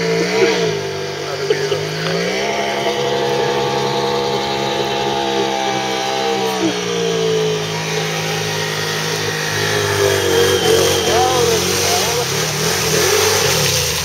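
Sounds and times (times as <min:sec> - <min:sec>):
churned water rushing: 0:00.0 - 0:14.0
quad engine at high revs: 0:00.0 - 0:14.0.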